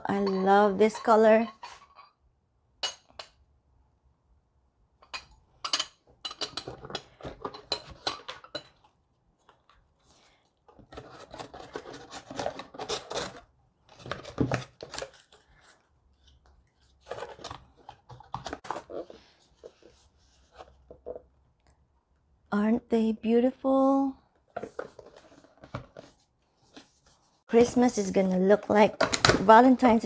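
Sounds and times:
stoneware pots clinking: 5.0s - 8.8s
cardboard rustling and scraping: 10.8s - 21.2s, 24.5s - 27.4s.

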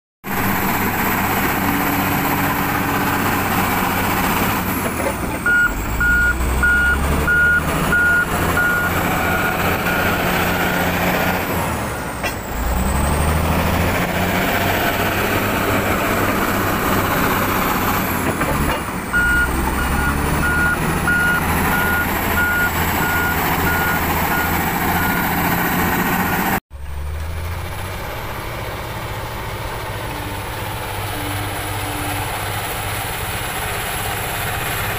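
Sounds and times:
bulldozer diesel engine revving: 0.3s - 34.9s
high engine whine: 0.3s - 34.9s
reverse alarm beeping: 5.4s - 10.1s, 19.2s - 25.3s.

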